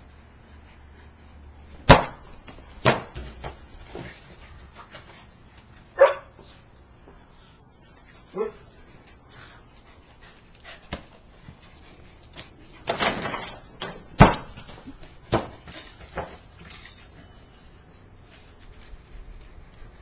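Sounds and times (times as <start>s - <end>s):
basketball knocks and thumps: 12.9s - 14.6s.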